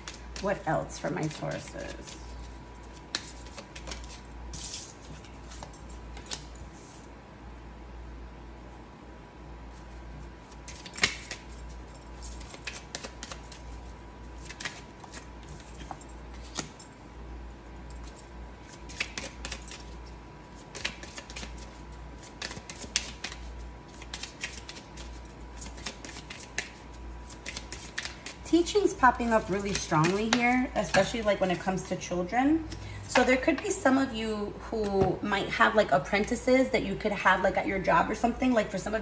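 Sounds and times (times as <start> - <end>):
cards shuffled by hand: 0.0 - 7.0, 10.4 - 16.8, 18.6 - 31.6.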